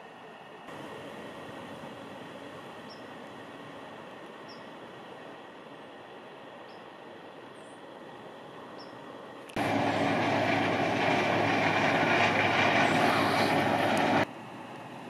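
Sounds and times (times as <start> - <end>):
faint outdoor background noise: 0.0 - 15.0
combine harvester drone: 9.5 - 15.0.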